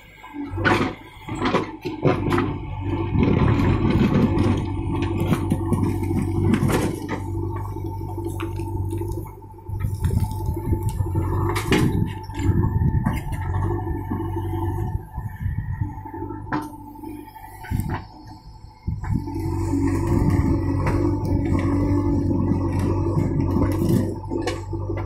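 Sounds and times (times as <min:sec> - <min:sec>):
diesel engine under load: 0:00.0 - 0:25.0
rattle of dirt and stones: 0:00.0 - 0:25.0
bucket and arm clanking: 0:00.5 - 0:18.4, 0:19.0 - 0:25.0.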